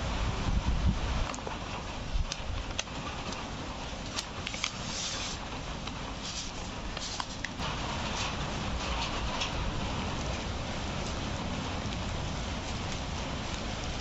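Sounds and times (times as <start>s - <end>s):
steady low rumble: 0.0s - 14.0s
paper envelope and cardboard rustling: 2.7s - 9.5s.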